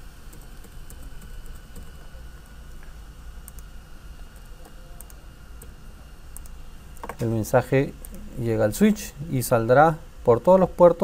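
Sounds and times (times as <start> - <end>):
steady low hum: 0.0 - 11.0
mouse clicks: 6.4 - 7.2.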